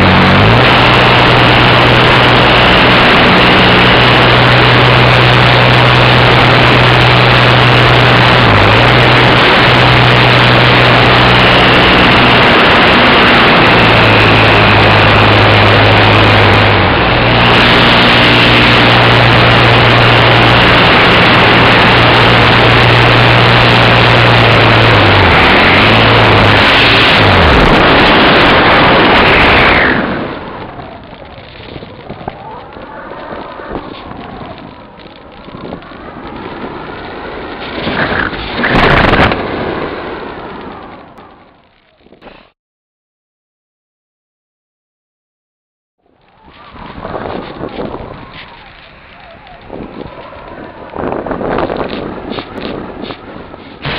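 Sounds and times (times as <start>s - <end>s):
electric motor and propeller running: 0.0s - 42.2s, 46.2s - 53.9s
wind rush on microphone: 0.0s - 42.6s, 46.1s - 53.9s.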